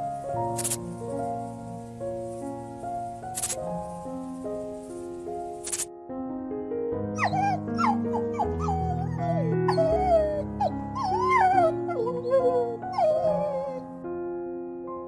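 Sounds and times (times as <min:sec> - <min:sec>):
soft background music: 0:00.0 - 0:15.0
small dog whimpering: 0:07.2 - 0:13.8.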